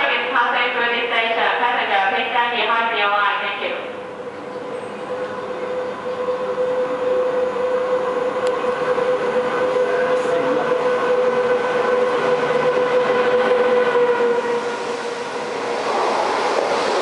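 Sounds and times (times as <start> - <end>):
electric train passing: 3.9 - 17.0
wheel and coach noise: 8.3 - 10.8.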